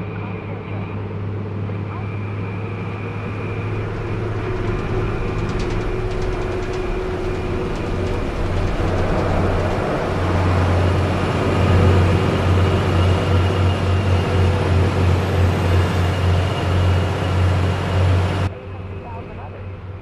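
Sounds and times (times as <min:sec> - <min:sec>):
truck diesel engine running: 0:02.5 - 0:18.5.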